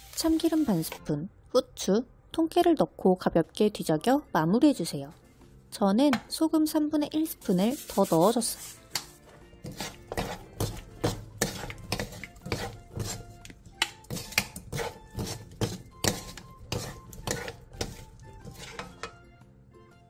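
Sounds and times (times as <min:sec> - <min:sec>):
wooden spatulas scraping a pan: 0:07.3 - 0:19.2.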